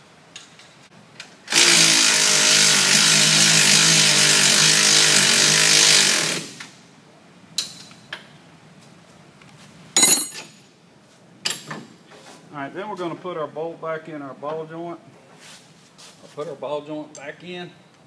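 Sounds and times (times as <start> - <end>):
power tool running: 1.5 - 6.7
metal clank: 10.0 - 10.6.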